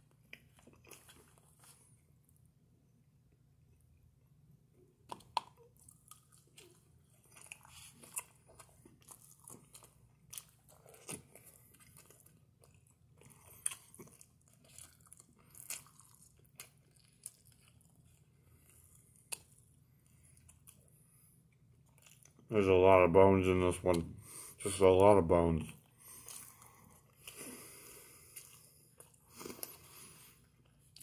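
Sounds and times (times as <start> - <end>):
chewing and lip smacks: 0.0 - 2.4, 5.0 - 22.5.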